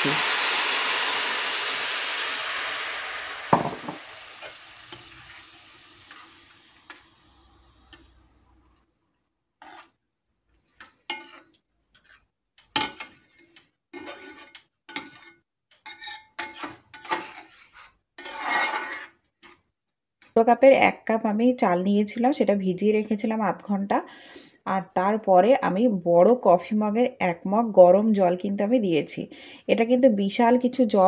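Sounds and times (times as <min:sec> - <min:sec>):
water sizzling in a pan: 0:00.0 - 0:08.8
spatula knocking on pan: 0:03.5 - 0:04.0
spatula scraping in pan: 0:03.9 - 0:08.6, 0:09.6 - 0:19.6.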